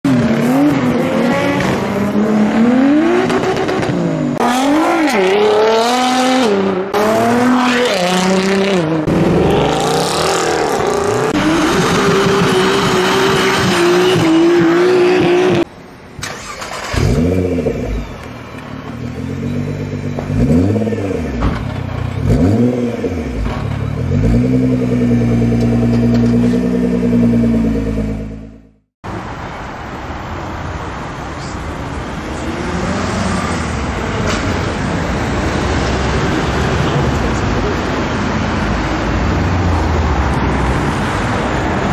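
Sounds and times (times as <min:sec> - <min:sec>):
car engine revving: 0:00.1 - 0:15.7, 0:19.2 - 0:28.8.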